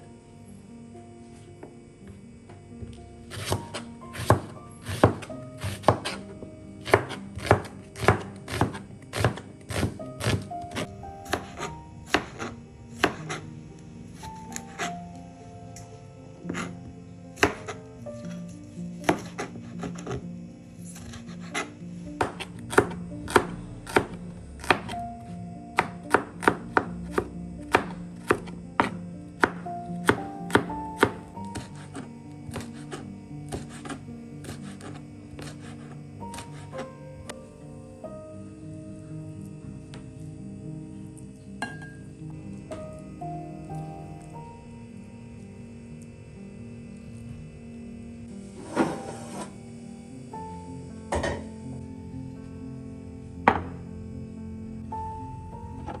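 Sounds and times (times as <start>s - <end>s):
knife slicing onion: 3.3s - 13.5s, 14.2s - 15.0s, 16.5s - 16.8s, 17.4s - 20.2s, 20.8s - 25.0s, 25.8s - 36.9s.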